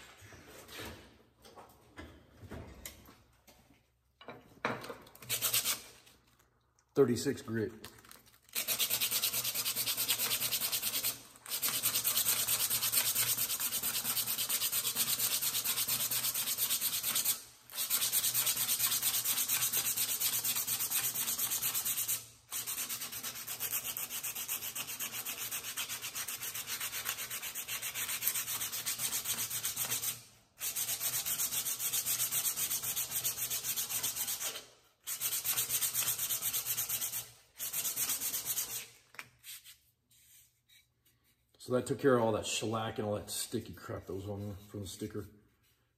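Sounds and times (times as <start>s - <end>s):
sandpaper rasping on wood: 5.2s - 5.8s, 8.6s - 38.9s.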